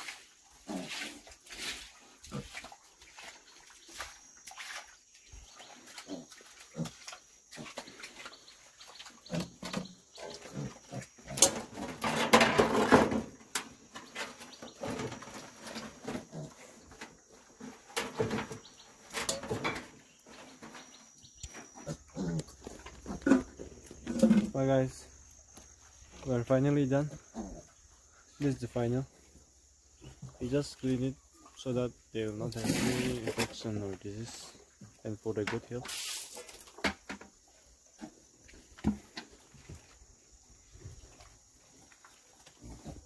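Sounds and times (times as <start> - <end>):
pigs grunting: 0.6 - 2.7, 5.8 - 8.3, 9.2 - 11.9, 16.0 - 16.9, 21.7 - 24.6, 26.9 - 28.4.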